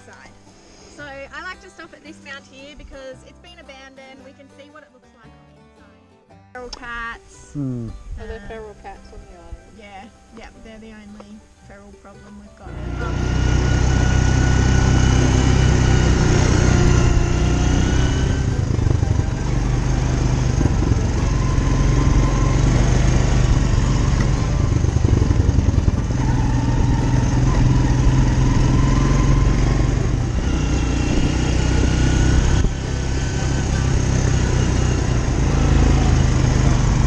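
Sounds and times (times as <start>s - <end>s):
quad bike engine running: 12.7s - 37.0s.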